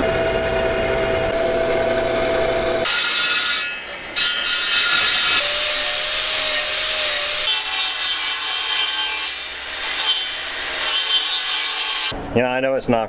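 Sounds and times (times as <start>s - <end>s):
power tool cutting metal: 0.0s - 12.2s
steady tool whine: 0.0s - 12.2s.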